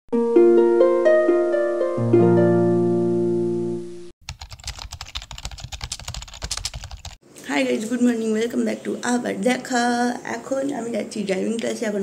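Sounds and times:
harp-like intro jingle: 0.2s - 4.1s
keyboard typing clicks: 4.3s - 7.2s.

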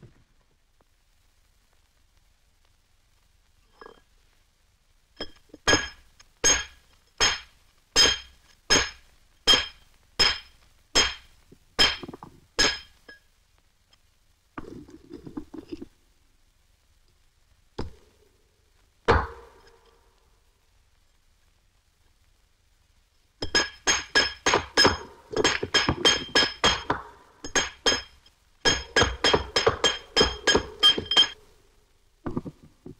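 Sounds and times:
hammer striking chisel on stone: 5.7s - 12.9s, 23.4s - 31.4s.

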